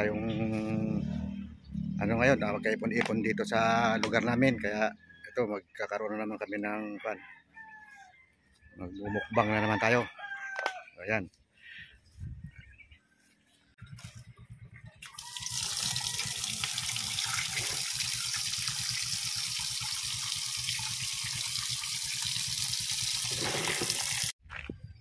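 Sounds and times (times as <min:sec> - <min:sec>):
tap water pouring into metal pot: 0:15.1 - 0:24.3.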